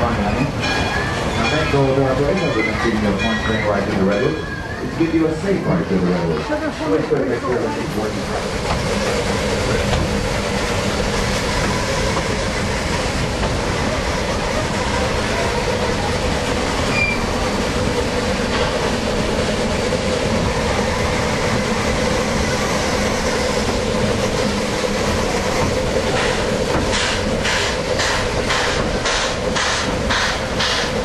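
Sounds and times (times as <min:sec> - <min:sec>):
train rolling rumble: 0:00.0 - 0:31.0
wheel squeal: 0:16.9 - 0:17.3.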